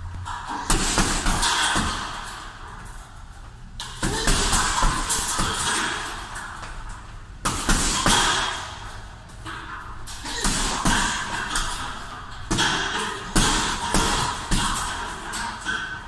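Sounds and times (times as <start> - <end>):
punches thudding on heavy bag: 0.6 - 2.3, 3.9 - 6.1, 7.4 - 8.7, 10.2 - 15.5.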